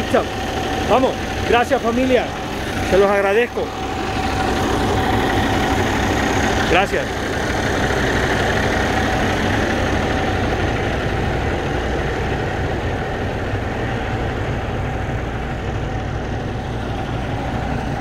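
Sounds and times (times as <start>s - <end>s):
truck diesel engine idling: 0.0s - 18.0s.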